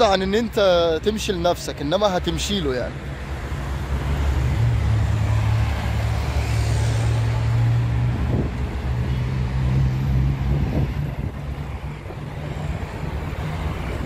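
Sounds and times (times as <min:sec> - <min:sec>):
engine humming: 0:02.9 - 0:14.0.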